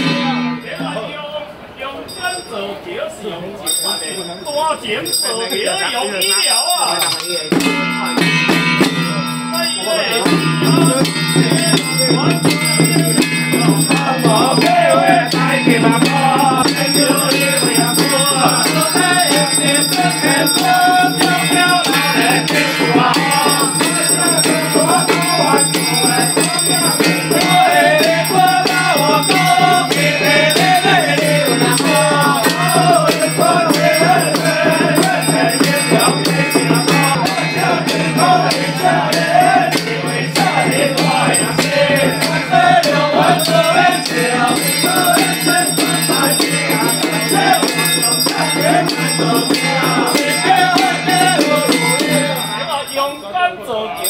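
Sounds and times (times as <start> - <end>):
rattling percussion: 2.0 - 54.0
hand drums: 6.3 - 53.0
group chanting: 9.8 - 52.7.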